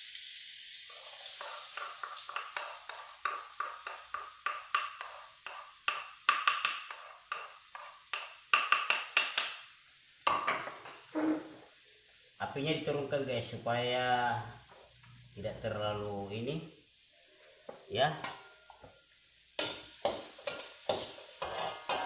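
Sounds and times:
spatula scraping a metal wok: 0:00.9 - 0:08.3, 0:11.1 - 0:11.6, 0:19.6 - 0:22.0.

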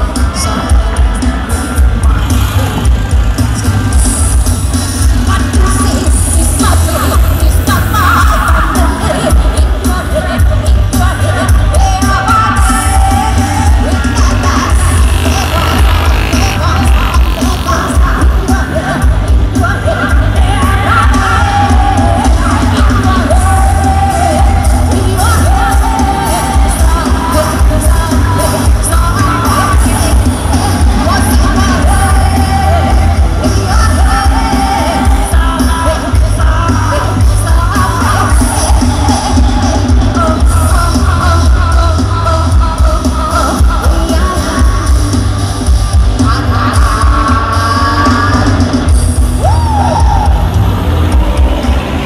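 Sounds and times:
distant amplified live band: 0:00.0 - 0:52.0
heavy pulsing bass: 0:00.0 - 0:52.0
person singing: 0:00.0 - 0:52.0
steady drum beat: 0:00.0 - 0:52.0.

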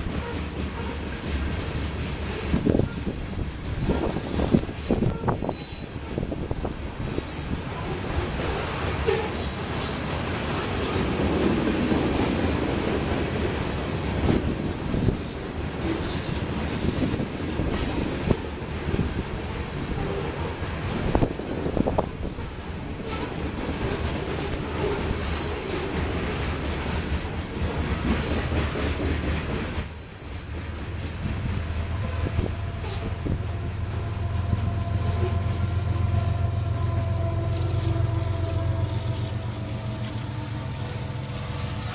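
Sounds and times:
train wheels rolling on rails: 0:00.0 - 0:41.9
sharp knocks of train cars: 0:20.9 - 0:33.5
locomotive engines low drone: 0:30.6 - 0:41.9.

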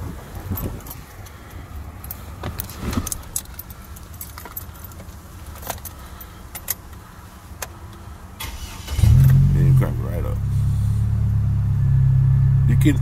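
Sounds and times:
keys jangling: 0:02.0 - 0:06.8.

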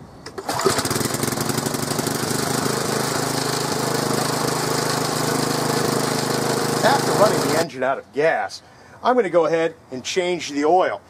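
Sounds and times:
lawn mower engine running: 0:00.2 - 0:07.7.

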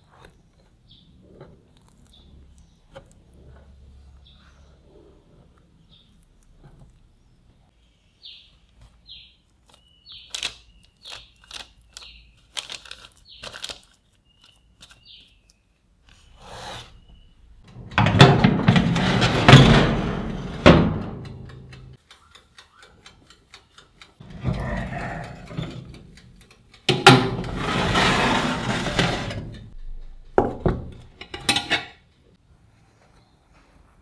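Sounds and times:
paper rustling: 0:09.6 - 0:15.0
oven door shutting: 0:17.7 - 0:21.3, 0:26.9 - 0:29.7
tray rattling and scraping: 0:17.7 - 0:21.9, 0:24.2 - 0:26.0, 0:26.9 - 0:29.8.

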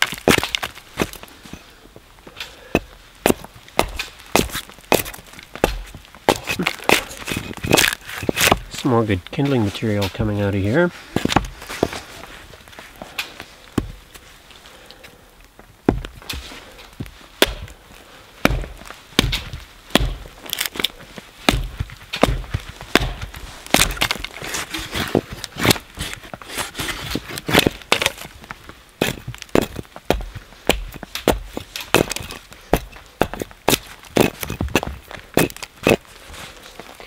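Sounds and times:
hatchet chopping wood: 0:02.4 - 0:08.7, 0:15.9 - 0:16.4, 0:17.4 - 0:17.8, 0:18.4 - 0:28.3, 0:29.0 - 0:36.0.

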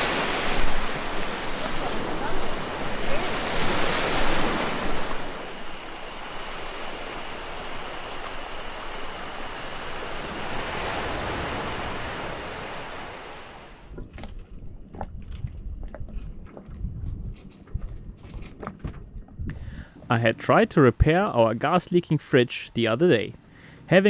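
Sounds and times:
waves breaking on beach: 0:00.0 - 0:13.8.

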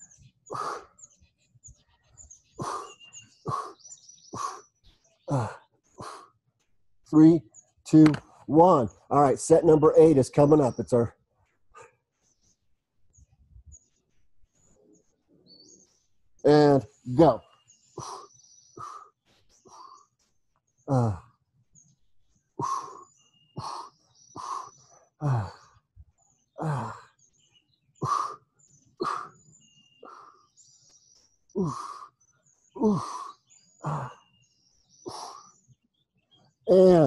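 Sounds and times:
small birds chirping: 0:00.0 - 0:37.0
man grunting with hard exhales: 0:05.3 - 0:05.7, 0:20.9 - 0:21.3, 0:25.2 - 0:25.7, 0:26.6 - 0:27.1, 0:31.6 - 0:32.0, 0:32.8 - 0:34.2.

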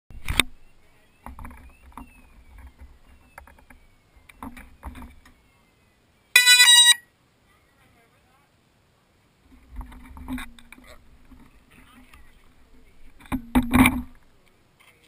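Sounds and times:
loud electronic beep: 0:06.4 - 0:07.0.

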